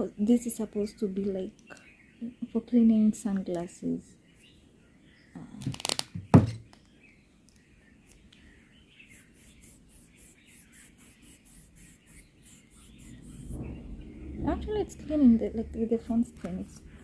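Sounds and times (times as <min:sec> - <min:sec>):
birds chirping faintly: 0:00.0 - 0:17.0
gadget rubbing on phone screen: 0:09.0 - 0:13.7.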